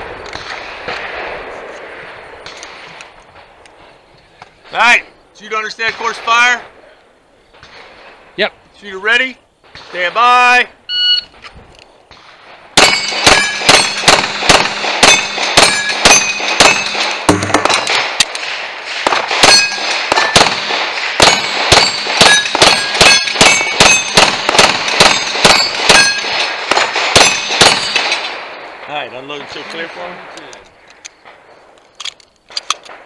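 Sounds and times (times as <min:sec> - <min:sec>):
pistol shots: 0:12.1 - 0:28.6
steel plate target ringing: 0:12.8 - 0:18.0, 0:19.4 - 0:20.5, 0:21.2 - 0:26.4.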